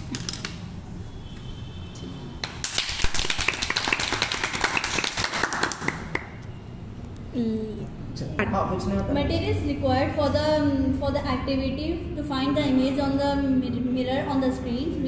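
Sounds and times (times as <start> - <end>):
people clapping: 2.4 - 6.4.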